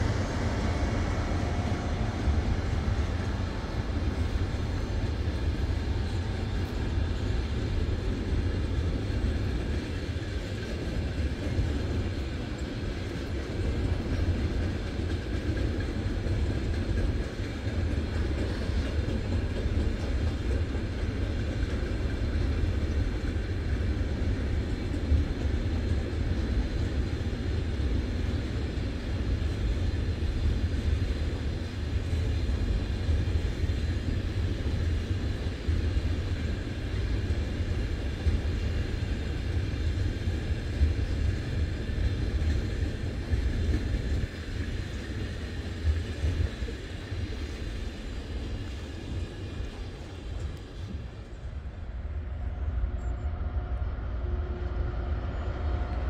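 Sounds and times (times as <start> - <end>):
train wheels rumbling on track: 0.0 - 56.0.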